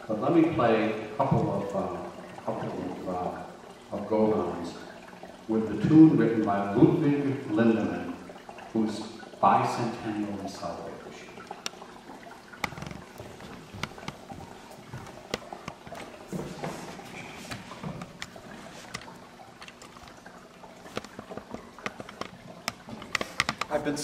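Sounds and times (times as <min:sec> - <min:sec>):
light clicks and taps: 0:20.9 - 0:23.9.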